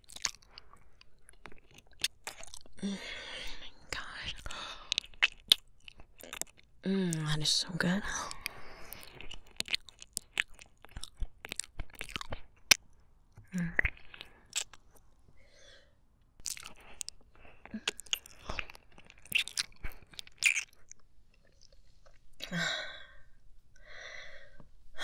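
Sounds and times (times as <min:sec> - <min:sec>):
lip smacks: 0:00.0 - 0:02.7, 0:04.2 - 0:06.7, 0:08.2 - 0:12.8, 0:13.4 - 0:15.1, 0:16.4 - 0:22.2
wet mouth sounds: 0:00.0 - 0:07.4, 0:08.2 - 0:12.8, 0:13.4 - 0:15.1, 0:16.4 - 0:22.6
tongue clicks: 0:04.0 - 0:07.3, 0:13.4 - 0:15.0, 0:16.4 - 0:22.6
short breaths: 0:15.4 - 0:16.0, 0:22.4 - 0:25.0.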